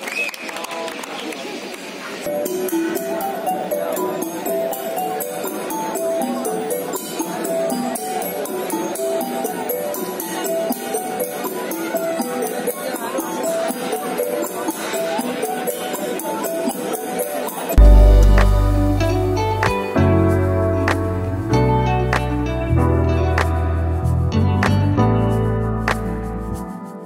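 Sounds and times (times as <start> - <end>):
deep bass note: 17.8 - 21.4.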